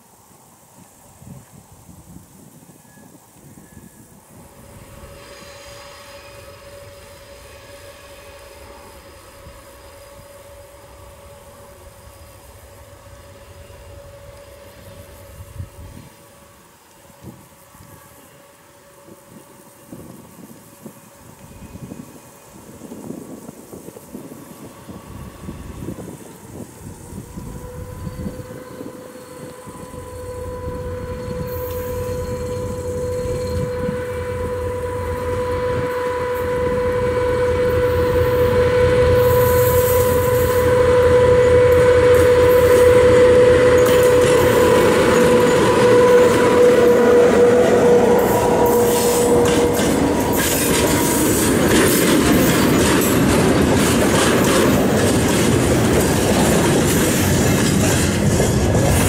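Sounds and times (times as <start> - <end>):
locomotive engine whine: 2.8 - 59.0
train wheels clattering on rails: 39.2 - 59.0.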